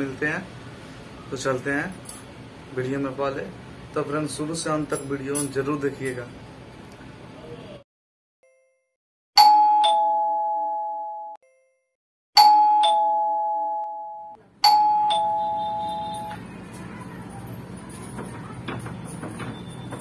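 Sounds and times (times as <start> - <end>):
doorbell ding-dong chime: 9.4 - 16.4.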